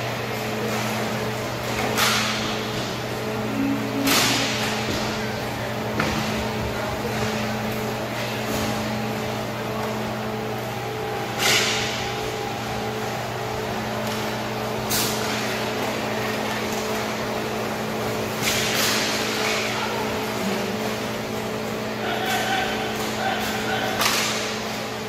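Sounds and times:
steady hum: 0.0s - 25.0s
hockey sticks clacking on puck: 18.4s - 19.8s, 22.0s - 24.7s.

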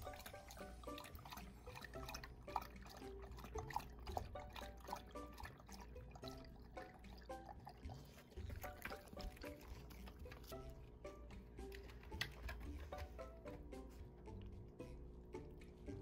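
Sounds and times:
dog lapping water: 0.0s - 10.8s
plucked-string background music: 0.0s - 16.0s.

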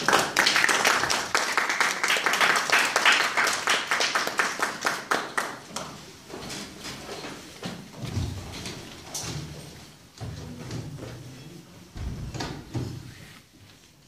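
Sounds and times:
small audience applauding: 0.0s - 5.9s.

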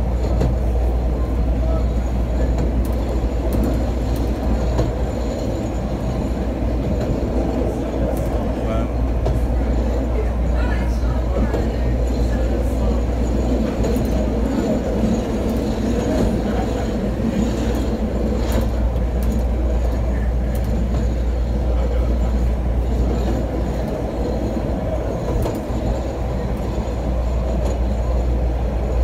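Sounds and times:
elevated train rumbling on track: 0.0s - 29.0s
sharp track clicks: 2.4s - 8.6s, 13.4s - 21.2s.

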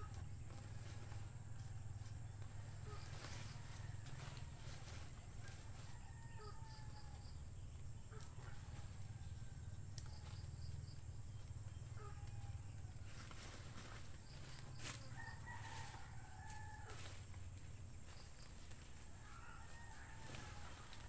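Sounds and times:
steady low hum: 0.0s - 21.0s
distant birds chirping: 4.8s - 15.8s.

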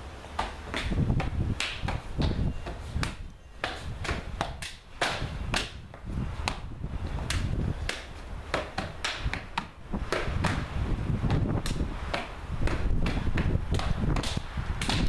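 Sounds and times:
sharp hand slaps: 0.4s - 2.4s, 7.2s - 10.6s, 11.3s - 15.0s.

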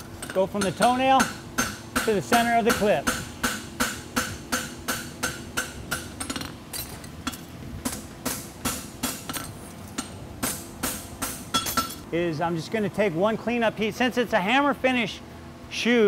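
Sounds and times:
hammer striking horseshoe on anvil: 0.2s - 12.0s.

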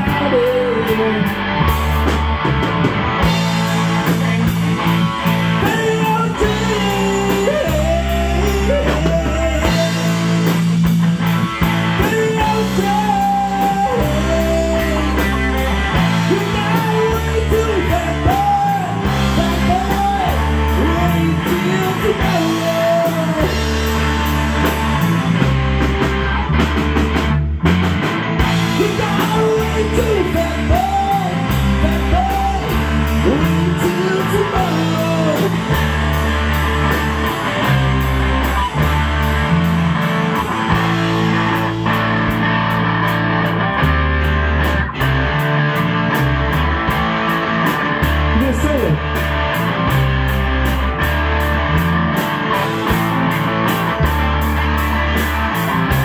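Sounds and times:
person singing into a microphone: 0.0s - 1.4s, 5.6s - 10.2s, 12.0s - 23.8s, 28.7s - 35.9s
distorted electric guitars: 0.0s - 56.0s
drum kit: 0.0s - 56.0s.

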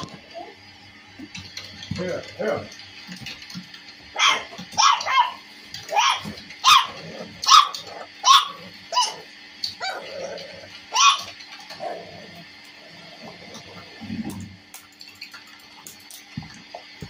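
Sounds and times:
puppy yapping: 4.1s - 10.1s, 10.9s - 11.4s.

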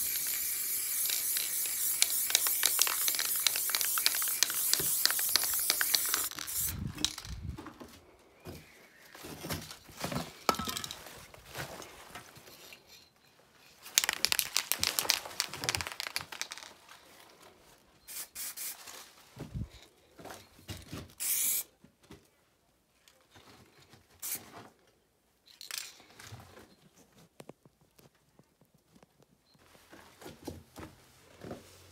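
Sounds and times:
spray paint can hissing: 0.0s - 7.3s, 14.0s - 16.7s, 18.1s - 18.8s, 21.2s - 21.6s
rustling and crinkling handling noise: 2.2s - 18.0s, 18.7s - 21.1s.

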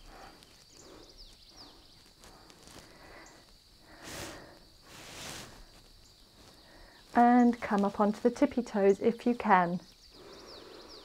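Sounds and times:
person breathing hard: 0.0s - 5.8s, 10.2s - 11.0s.

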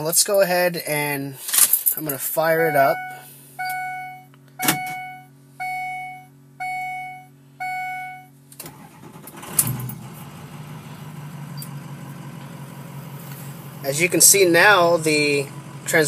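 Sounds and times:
diesel engine cranking and idling: 1.1s - 16.0s
dashboard warning chime: 2.4s - 8.4s.

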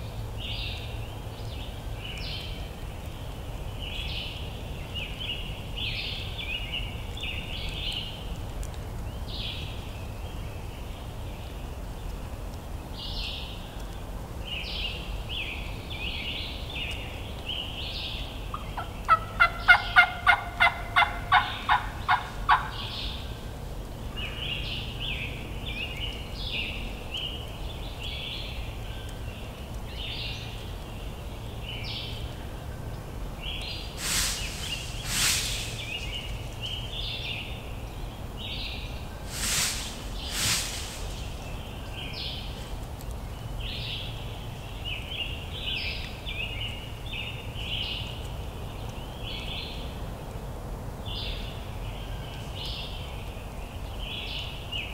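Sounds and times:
songbirds chirping: 0.0s - 54.9s
turkey yelps: 18.5s - 22.9s
short loud swishes: 34.0s - 36.1s, 39.3s - 41.3s.

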